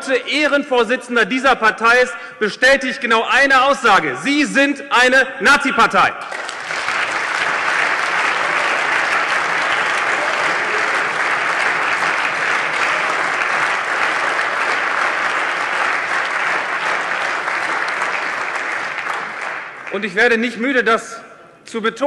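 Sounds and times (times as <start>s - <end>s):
crowd applause: 6.2s - 20.2s.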